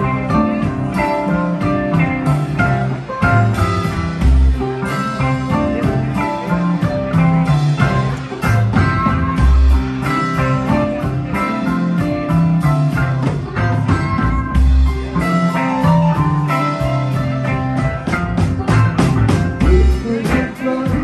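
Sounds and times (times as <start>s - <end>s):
drum and cymbal beat: 0.0s - 21.0s
live rock band playing: 0.0s - 21.0s.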